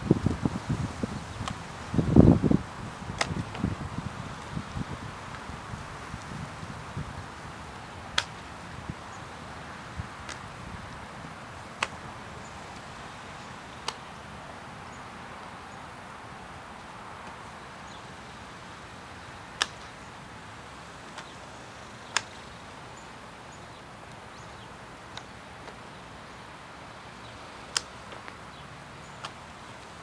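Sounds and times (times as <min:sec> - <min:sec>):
steady outdoor hiss: 0:00.0 - 0:30.0
flying disc slaps: 0:00.2 - 0:05.5, 0:08.1 - 0:08.4, 0:09.9 - 0:10.8, 0:11.8 - 0:12.2, 0:19.5 - 0:20.0, 0:21.0 - 0:21.4, 0:27.6 - 0:28.4, 0:29.1 - 0:29.4.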